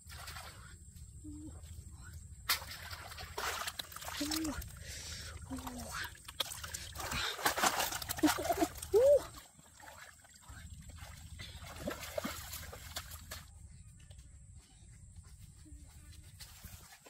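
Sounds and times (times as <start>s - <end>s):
fish thrashing in water: 2.5s - 13.4s
water dripping: 2.5s - 13.4s.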